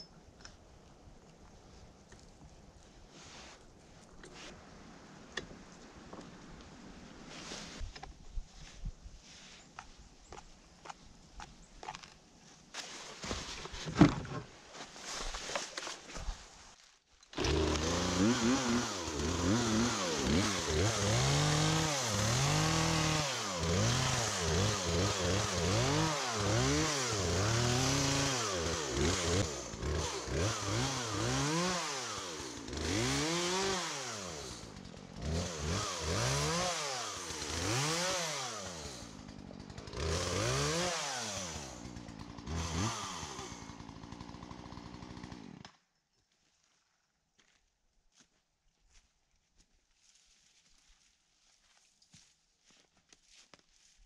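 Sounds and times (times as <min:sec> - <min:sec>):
electric chainsaw motor whine: 0:17.4 - 0:45.6.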